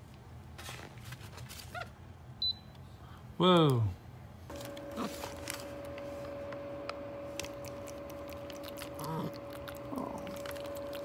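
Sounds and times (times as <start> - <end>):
air purifier fan whooshing: 4.4 - 8.6.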